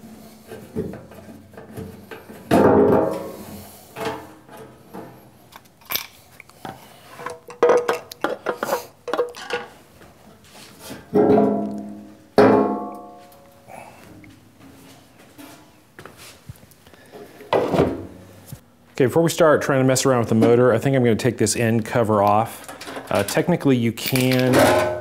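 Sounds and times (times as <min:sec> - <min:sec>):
sheet metal knocking and clanging: 0:00.7 - 0:05.1, 0:11.1 - 0:13.2, 0:24.5 - 0:25.0.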